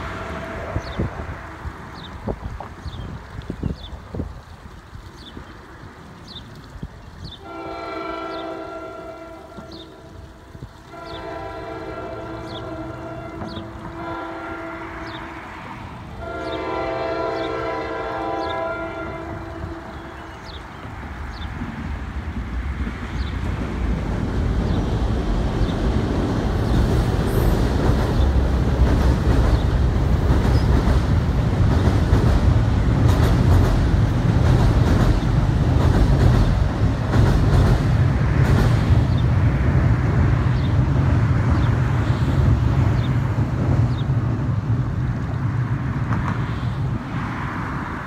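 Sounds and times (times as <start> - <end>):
train rumbling across steel bridge: 0.0 - 48.0
wheels clacking over rail joints: 9.4 - 46.4.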